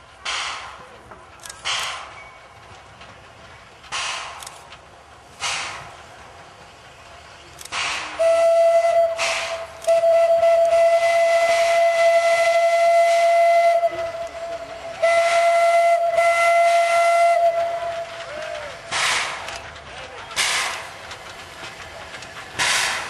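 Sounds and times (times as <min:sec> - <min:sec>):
steam hissing: 0:00.0 - 0:23.0
steam locomotive whistle: 0:08.1 - 0:18.8.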